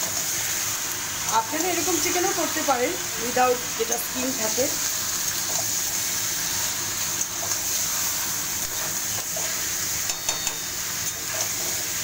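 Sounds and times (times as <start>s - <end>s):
chicken sizzling in hot oil: 0.0s - 12.0s
metal spatula scraping pan: 6.4s - 12.0s.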